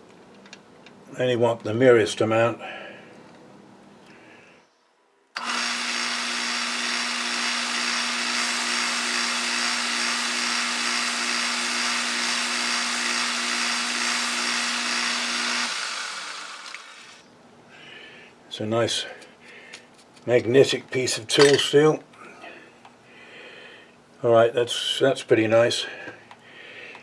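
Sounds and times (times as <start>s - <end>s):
metal lathe running: 5.4s - 16.9s.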